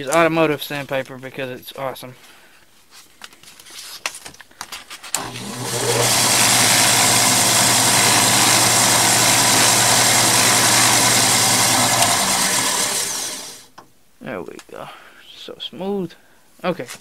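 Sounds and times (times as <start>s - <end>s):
drill press motor hum: 5.2s - 13.7s.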